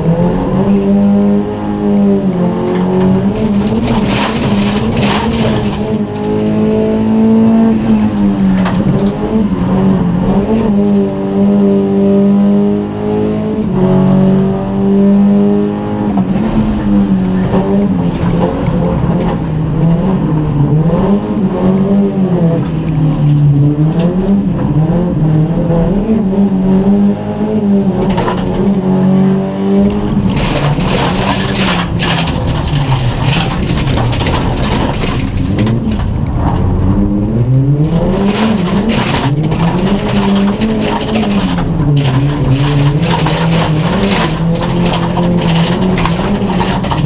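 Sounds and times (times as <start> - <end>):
race car engine through gear changes: 0.0 - 47.0
gravel striking car underbody: 2.1 - 11.1, 27.9 - 47.0.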